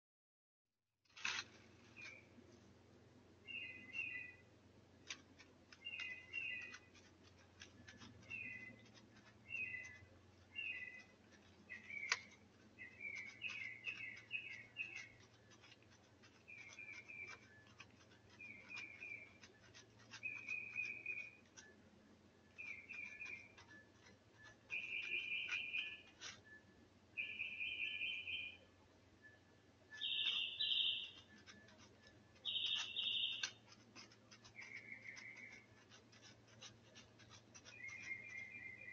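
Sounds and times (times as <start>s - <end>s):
cat scratching leaf litter: 1.1s - 2.9s, 3.5s - 21.8s, 22.4s - 26.6s, 29.9s - 38.9s
short high chirping calls: 3.4s - 4.5s, 5.3s - 21.8s, 22.4s - 38.9s.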